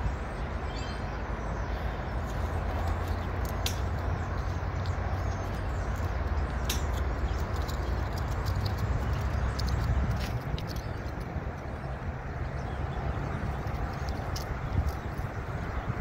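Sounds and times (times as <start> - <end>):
sharp clicks: 2.8 - 11.7.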